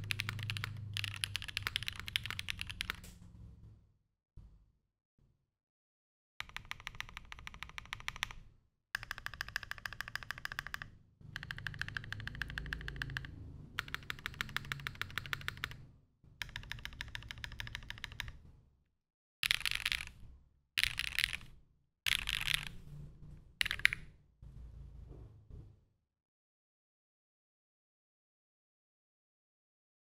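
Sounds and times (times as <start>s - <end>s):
mechanical keyboard typing: 0.0s - 3.1s, 6.4s - 8.4s, 9.0s - 15.8s, 16.4s - 18.4s, 19.4s - 22.9s, 23.6s - 24.1s.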